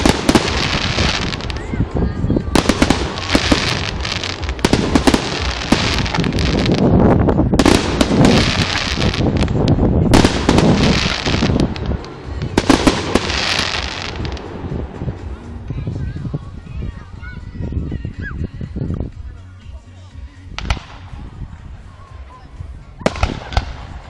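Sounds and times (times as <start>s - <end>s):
fireworks bangs and crackling: 0.0s - 17.0s, 20.6s - 21.5s, 23.0s - 24.0s.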